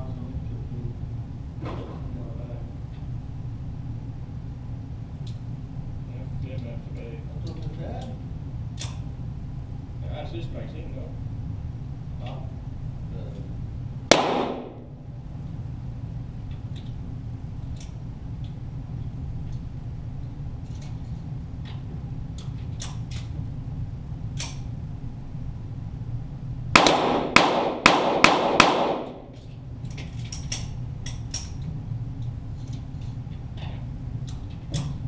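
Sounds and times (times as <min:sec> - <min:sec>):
steady low hum: 0:00.0 - 0:35.0
rapid pistol shots: 0:14.1 - 0:14.9, 0:26.7 - 0:29.3.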